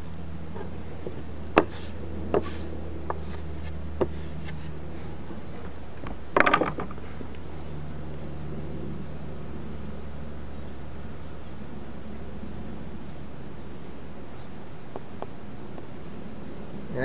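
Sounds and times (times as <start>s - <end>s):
steady low hum: 0.0s - 17.0s
wooden stick tapping and scraping: 0.5s - 7.4s.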